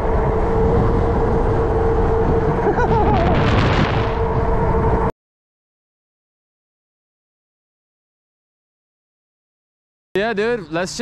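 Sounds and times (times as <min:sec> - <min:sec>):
constant whine: 0:00.0 - 0:05.1
wind buffeting microphone: 0:00.0 - 0:05.1.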